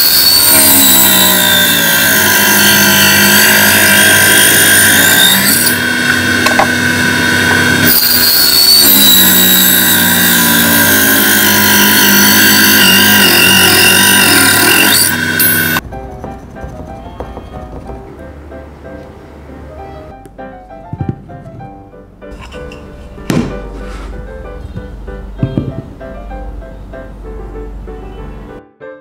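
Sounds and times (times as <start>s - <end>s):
saw blade cutting wood: 0.0s - 15.8s
table saw motor whine: 0.0s - 15.8s.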